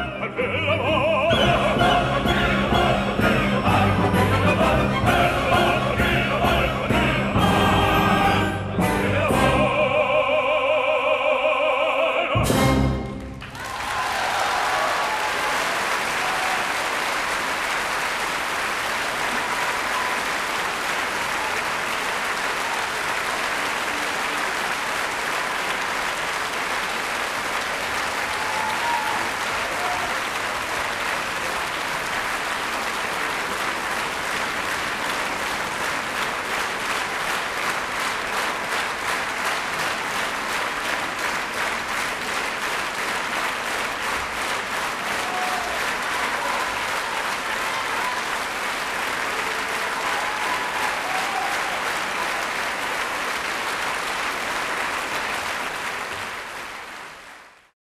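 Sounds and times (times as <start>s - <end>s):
audience applauding: 13.0s - 57.7s.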